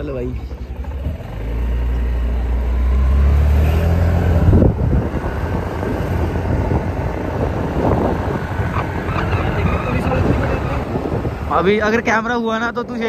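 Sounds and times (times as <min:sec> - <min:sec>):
scooter engine: 0:00.0 - 0:11.8
wind rumble on microphone: 0:04.1 - 0:13.0.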